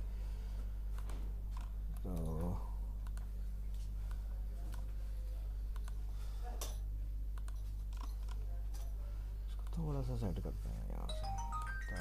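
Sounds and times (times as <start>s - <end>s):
low electrical hum: 0.0s - 12.0s
computer mouse clicks: 3.0s - 3.3s, 5.7s - 6.0s, 7.4s - 8.4s.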